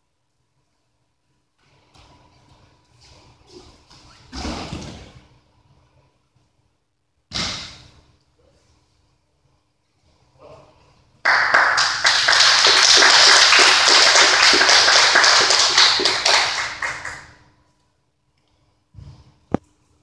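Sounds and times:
audience applauding: 11.2s - 17.4s.

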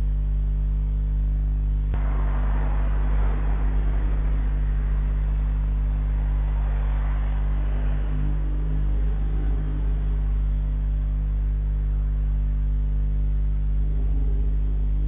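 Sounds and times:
electrical mains hum: 0.0s - 15.0s
car driving past: 2.0s - 12.4s.

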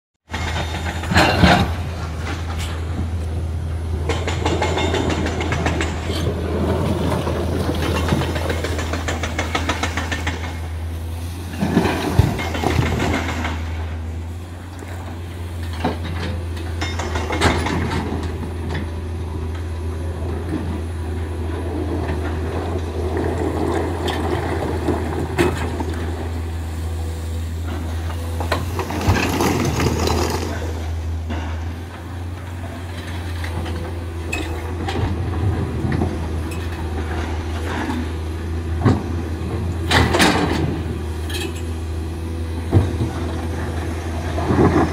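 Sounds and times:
excavator diesel engine running: 0.3s - 44.9s
bucket clanking and scraping on rock: 4.1s - 10.6s, 27.6s - 31.8s.

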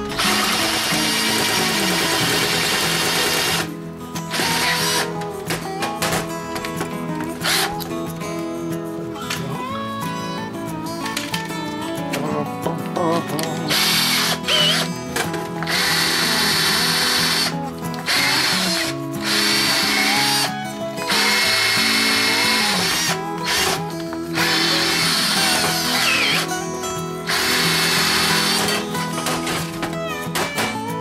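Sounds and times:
cordless drill running in bursts: 0.0s - 5.6s, 7.4s - 7.8s, 13.7s - 30.8s
guitar background music: 0.0s - 31.0s.

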